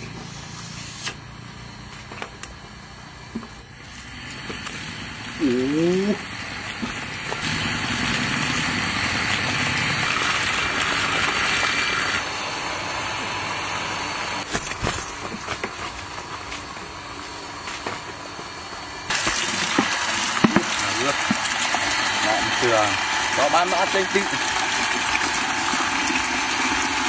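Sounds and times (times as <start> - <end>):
water pump humming: 1.4 - 27.0
water pouring into plastic bucket: 19.1 - 27.0.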